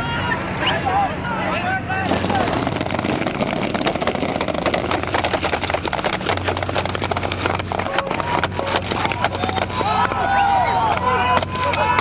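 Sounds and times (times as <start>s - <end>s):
steady low hum: 0.0s - 12.0s
rapid clicking and knocking: 2.2s - 10.2s.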